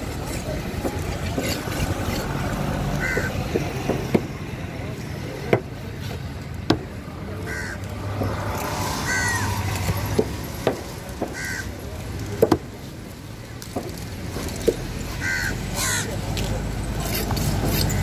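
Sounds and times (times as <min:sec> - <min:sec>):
crows cawing: 0:03.0 - 0:03.4, 0:07.5 - 0:07.8, 0:08.9 - 0:09.8, 0:11.3 - 0:11.8, 0:15.2 - 0:16.1.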